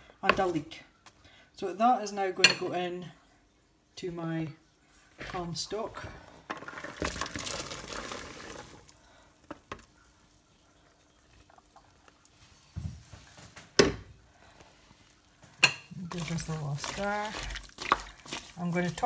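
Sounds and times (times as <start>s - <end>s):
vegetables splashing into pot: 6.5s - 10.0s, 15.5s - 19.0s.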